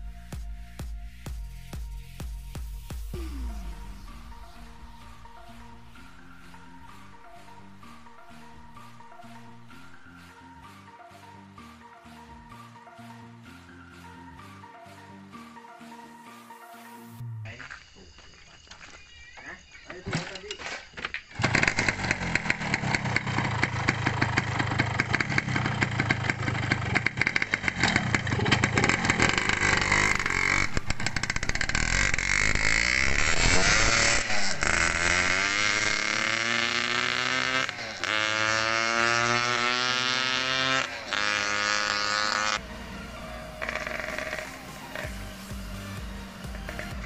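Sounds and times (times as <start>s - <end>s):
motorcycle engine revving: 2.4s - 10.2s, 21.3s - 47.0s.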